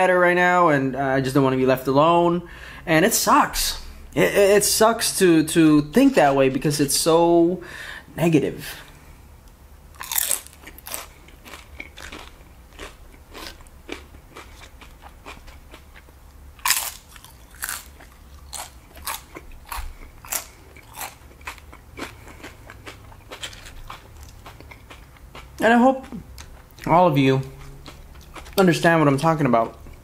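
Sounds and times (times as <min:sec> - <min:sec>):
tortilla chips crunching: 0:10.0 - 0:27.0.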